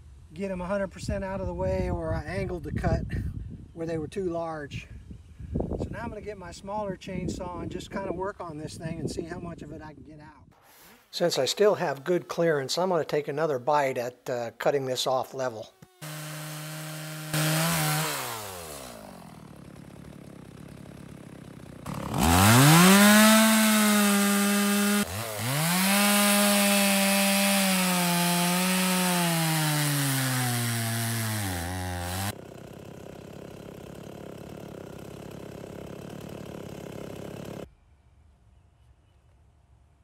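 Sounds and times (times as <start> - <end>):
chainsaw cutting wood: 15.7 - 37.7.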